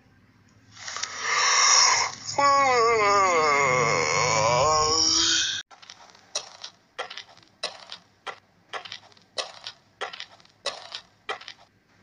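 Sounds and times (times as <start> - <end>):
footsteps walking: 5.7 - 12.0.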